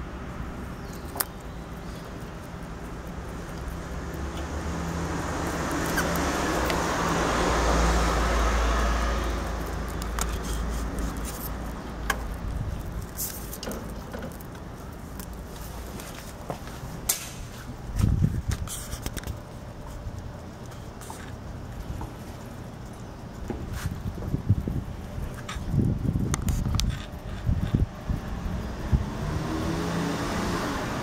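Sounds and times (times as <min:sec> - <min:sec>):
vehicle passing: 0:02.7 - 0:12.0, 0:28.0 - 0:31.0.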